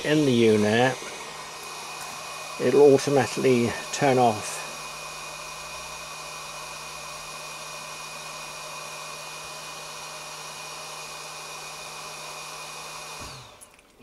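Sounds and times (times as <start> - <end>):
hot air gun fan blowing: 0.0 - 13.7.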